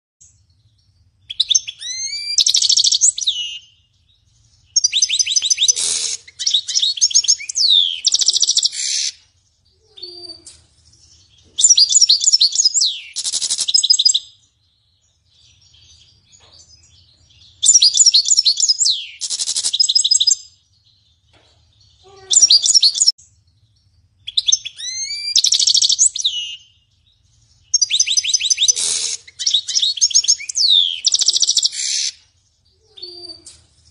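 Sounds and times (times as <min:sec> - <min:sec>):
goldfinch singing: 0:00.2 - 0:09.2, 0:09.9 - 0:32.2.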